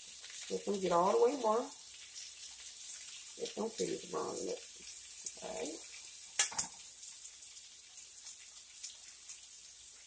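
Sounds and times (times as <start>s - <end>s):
meat sizzling in a frying pan: 0.0s - 10.0s.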